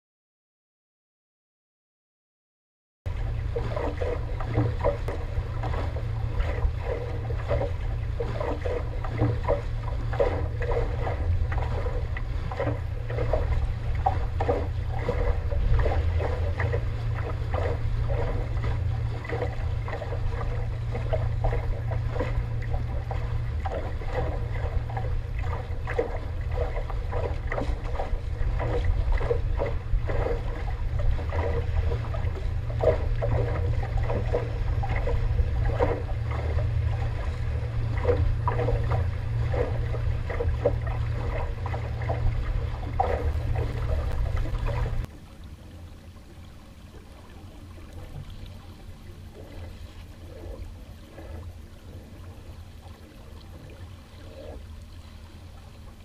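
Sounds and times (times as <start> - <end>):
wind rumble on microphone: 3.1 - 45.2
water splashing along hull: 3.1 - 56.0.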